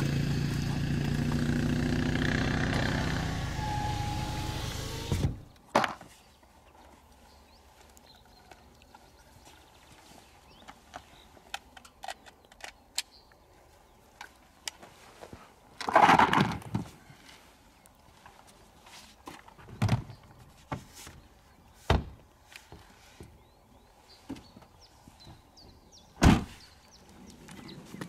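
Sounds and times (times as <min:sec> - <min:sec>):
rifle handling clicks and knocks: 0:10.6 - 0:13.2.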